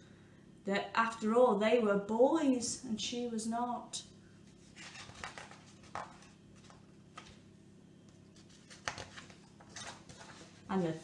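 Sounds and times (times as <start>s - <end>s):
book pages rustling: 4.5s - 11.0s.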